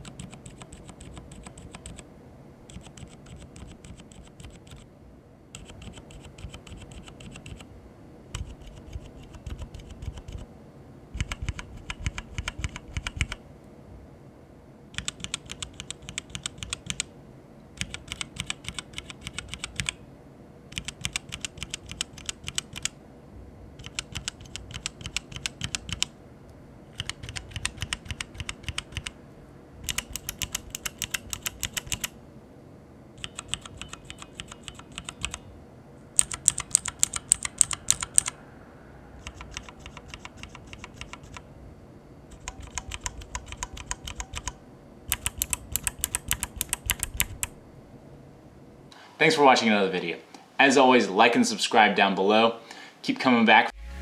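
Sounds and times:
keyboard switches pressed rapidly: 0.0s - 2.0s, 2.7s - 4.9s, 5.6s - 7.7s, 8.3s - 10.4s, 11.2s - 13.4s, 14.9s - 17.1s, 17.8s - 20.0s, 20.7s - 23.0s, 23.8s - 26.1s, 26.9s - 29.2s, 29.8s - 32.2s, 33.2s - 35.4s, 36.2s - 38.4s, 39.2s - 41.5s, 42.3s - 47.5s.

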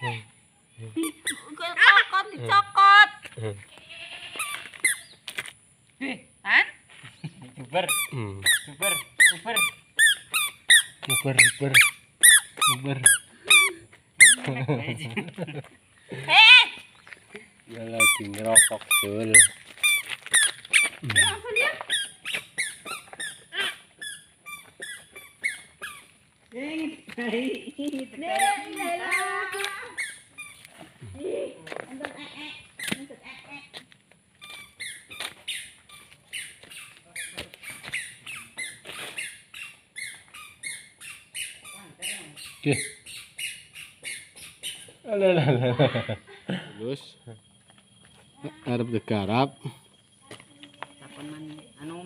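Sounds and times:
birds chirping: 0.0s - 5.9s, 6.9s - 52.0s
small animal squeaking peeps: 3.8s - 5.3s, 7.1s - 14.5s, 17.8s - 26.2s, 28.2s - 31.2s, 32.1s - 33.8s, 34.4s - 45.2s.

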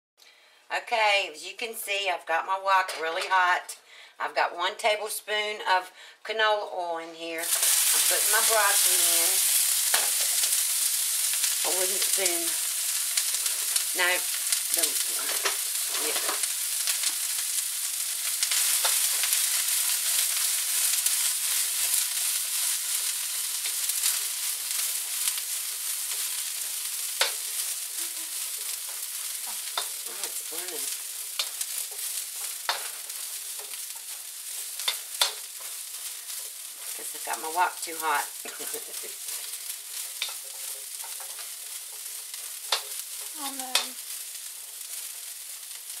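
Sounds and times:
vegetables sizzling in oil: 7.2s - 46.0s
wooden spoon scraping pan: 12.9s - 17.4s, 18.3s - 43.8s.

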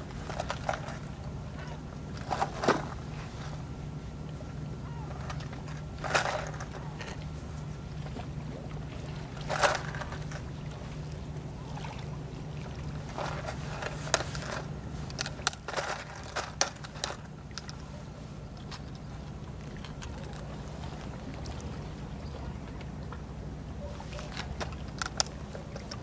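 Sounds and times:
steady low hum: 0.0s - 26.0s
clicks and rustles of tackle: 0.1s - 1.2s, 2.2s - 3.1s, 5.1s - 7.2s, 9.4s - 10.6s, 13.0s - 21.1s, 23.9s - 26.0s.

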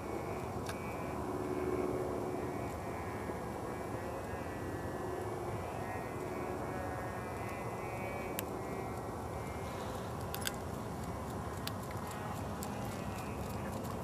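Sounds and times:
distant engine drone: 0.0s - 14.0s.

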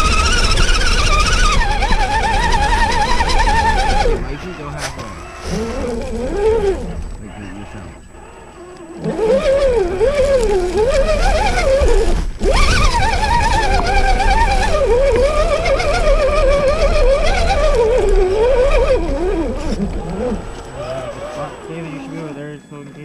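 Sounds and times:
electric motor and gears whining: 0.0s - 23.0s.

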